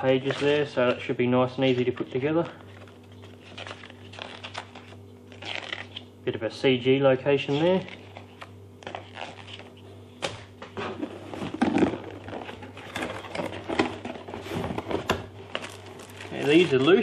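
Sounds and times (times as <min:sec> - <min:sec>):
cardboard and paper rustling: 0:00.0 - 0:06.0, 0:10.7 - 0:17.0.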